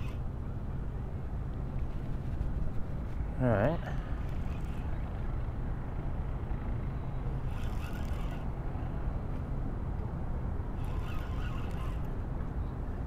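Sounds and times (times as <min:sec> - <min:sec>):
fishing reel cranking: 0:00.0 - 0:00.2, 0:04.2 - 0:05.1, 0:07.4 - 0:08.5, 0:10.8 - 0:12.2
low background rumble: 0:00.0 - 0:13.0.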